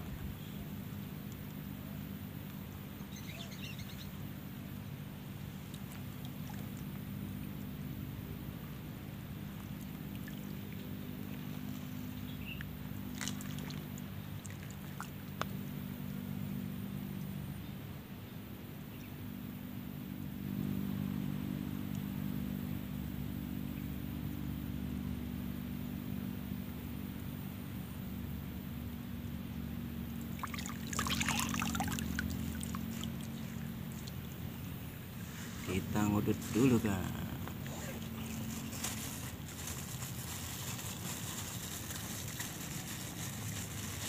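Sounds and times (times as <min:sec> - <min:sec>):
low motor hum: 0:00.0 - 0:44.0
hands splashing in water: 0:13.1 - 0:13.8, 0:30.4 - 0:34.2.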